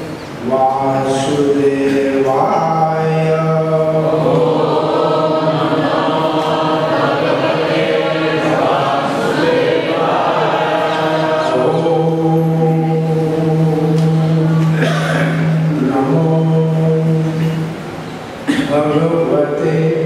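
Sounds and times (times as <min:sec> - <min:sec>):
voices chanting in unison: 0:02.4 - 0:15.0.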